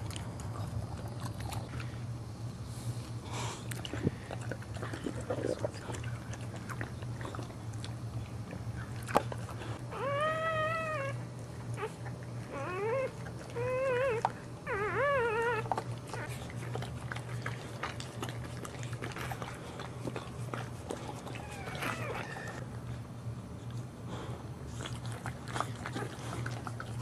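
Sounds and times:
steady low hum: 0:00.0 - 0:27.0
puppy crying in high squeals: 0:09.9 - 0:11.2, 0:11.8 - 0:16.3, 0:21.4 - 0:22.6.

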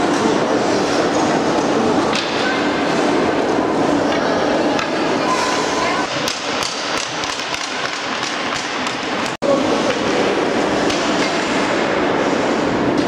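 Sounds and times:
ice hockey game din: 0:00.0 - 0:13.0.

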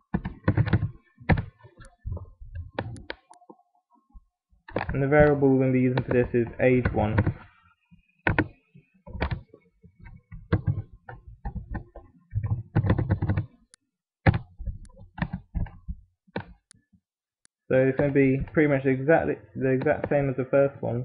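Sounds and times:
computer keyboard typing: 0:00.1 - 0:02.0, 0:10.5 - 0:10.8, 0:11.5 - 0:13.6.

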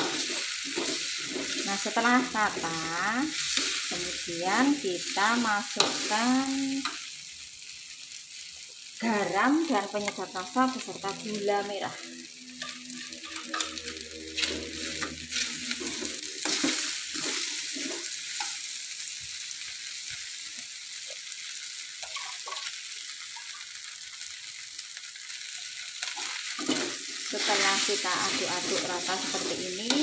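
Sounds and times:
metal ladle scraping a pan: 0:00.0 - 0:04.2, 0:12.0 - 0:18.6, 0:26.2 - 0:30.0
food sizzling in a wok: 0:00.0 - 0:30.0.

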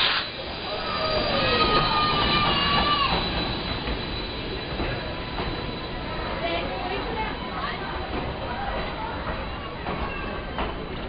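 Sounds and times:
carriage wheels squealing: 0:00.0 - 0:11.0
train rumble: 0:00.0 - 0:11.0.

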